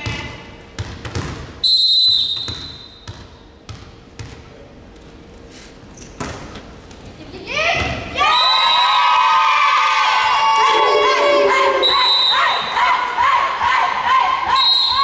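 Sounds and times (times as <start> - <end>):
referee's whistle blast: 10.7 - 12.7.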